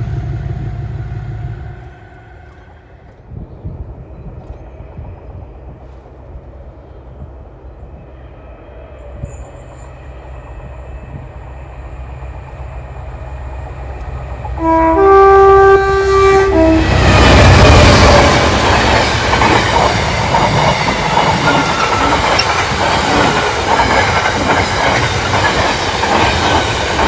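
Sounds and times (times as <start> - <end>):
diesel locomotive rumble: 0.0 - 27.0
two-tone train horn: 14.5 - 18.4.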